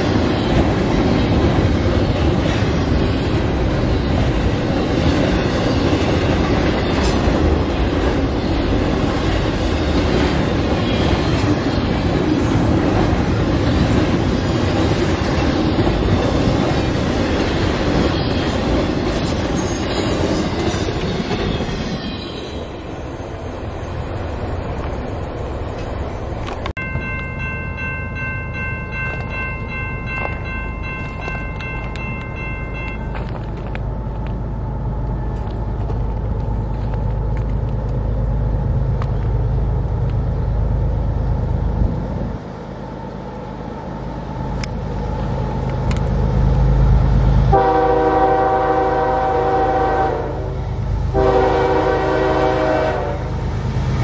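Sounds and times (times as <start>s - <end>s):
freight train wheels rumbling on rails: 0.0s - 54.0s
locomotive horn chord: 47.5s - 53.4s.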